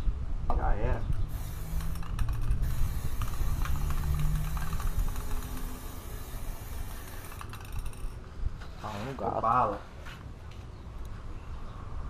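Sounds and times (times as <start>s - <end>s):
spray-paint can hissing: 1.2s - 8.1s.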